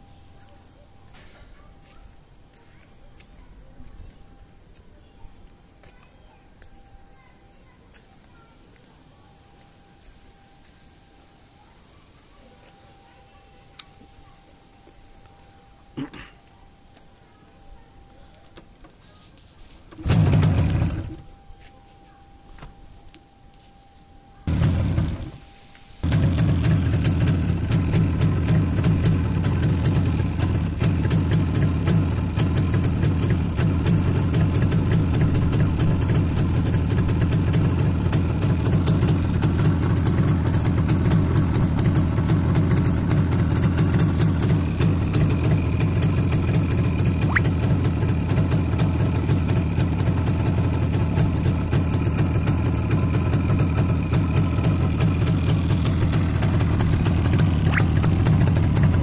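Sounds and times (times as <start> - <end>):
two-stroke motorcycle engine idling: 19.9 - 21.7, 24.4 - 59.0.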